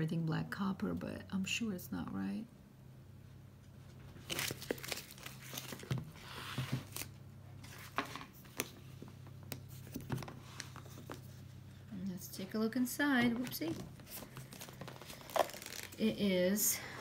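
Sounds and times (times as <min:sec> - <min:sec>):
faint low hum: 0:00.0 - 0:17.0
wrapping and paper rustling: 0:04.1 - 0:11.4, 0:13.4 - 0:16.1.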